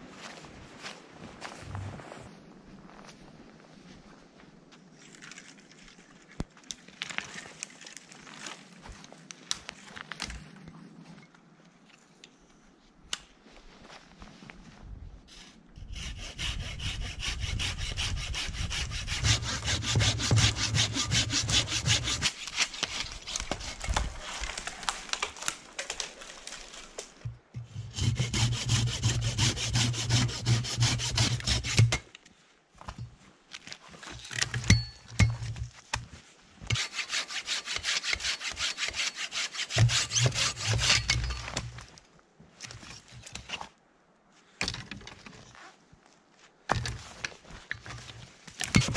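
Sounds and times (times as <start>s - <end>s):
hand saw cutting log: 15.8s - 24.6s, 27.6s - 32.1s, 36.7s - 41.4s, 48.6s - 48.9s.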